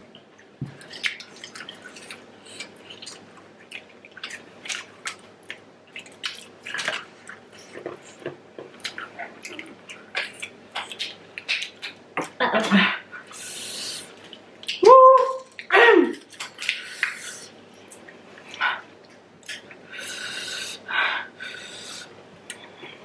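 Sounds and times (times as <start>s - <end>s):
wet squishing: 0.7s - 8.0s.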